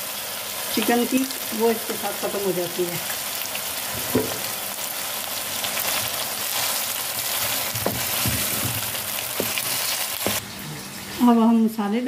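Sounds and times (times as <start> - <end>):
chicken sizzling in hot oil: 0.0 - 11.4
wooden spoon stirring: 6.6 - 10.4.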